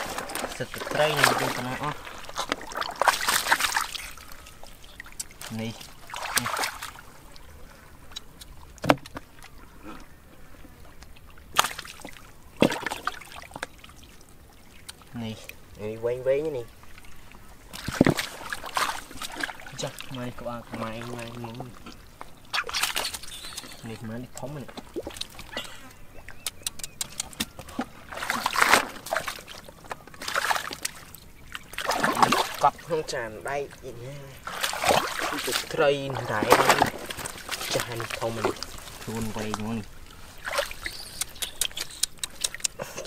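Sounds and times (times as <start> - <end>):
sharp splashes: 0.0 - 7.2, 11.5 - 15.0, 17.7 - 33.2, 34.3 - 43.0
muddy water sloshing: 0.0 - 43.0
small drips: 0.3 - 10.1, 10.8 - 32.9, 33.8 - 43.0.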